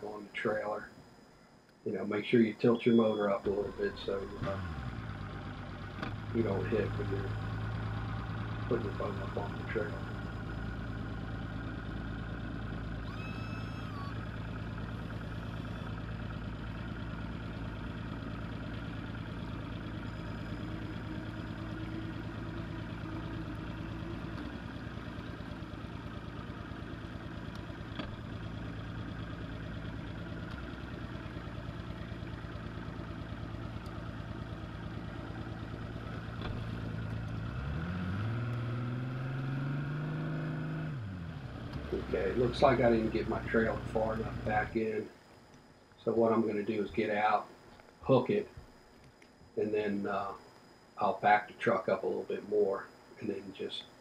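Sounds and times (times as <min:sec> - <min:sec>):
outboard motor running: 0:02.7 - 0:39.1, 0:40.9 - 0:47.3.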